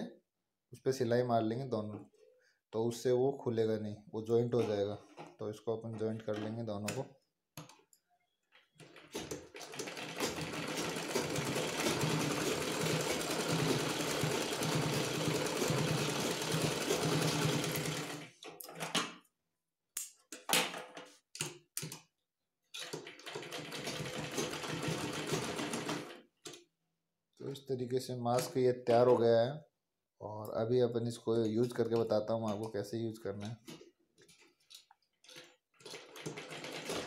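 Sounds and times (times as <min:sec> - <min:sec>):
sewing machine stitching: 0:08.7 - 0:18.4, 0:22.8 - 0:26.2, 0:35.3 - 0:37.0.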